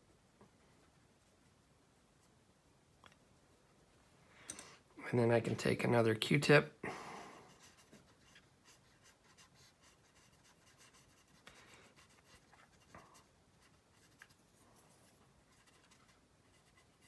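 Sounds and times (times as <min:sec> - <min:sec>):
cotton swab rubbing on plastic: 0:07.5 - 0:17.0.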